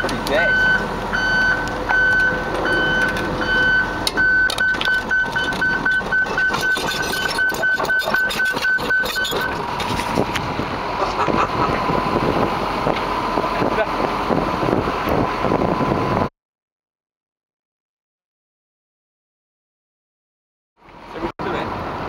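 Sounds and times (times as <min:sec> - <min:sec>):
excavator travel alarm beeping: 0:00.0 - 0:09.6
tracks clanking and crunching: 0:00.0 - 0:11.9
excavator engine running: 0:00.0 - 0:16.3.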